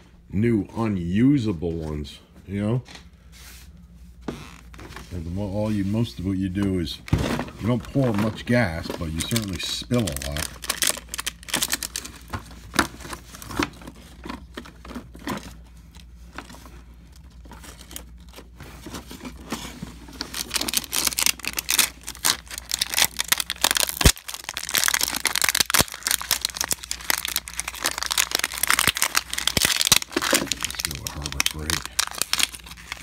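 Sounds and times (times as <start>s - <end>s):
plastic wrap crinkling and tearing: 7.0s - 33.0s.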